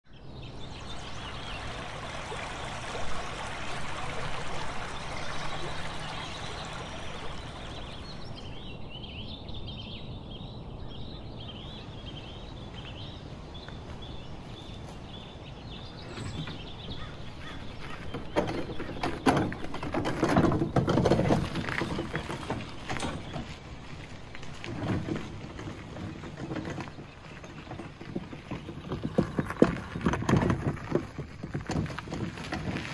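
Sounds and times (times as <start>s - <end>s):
bird calling: 0.1s - 29.6s
wheelbarrow wheel crunching gravel: 0.6s - 8.8s, 11.6s - 32.9s
footsteps on gravel: 12.1s - 32.9s.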